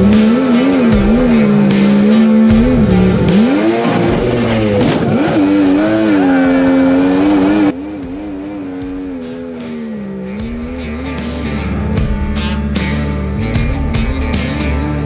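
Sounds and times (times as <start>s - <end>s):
boat engine running hard: 0.0s - 11.9s.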